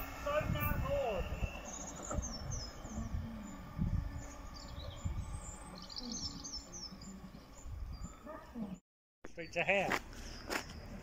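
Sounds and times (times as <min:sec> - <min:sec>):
low outdoor rumble: 0:00.0 - 0:08.8
small birds chirping: 0:00.2 - 0:11.0.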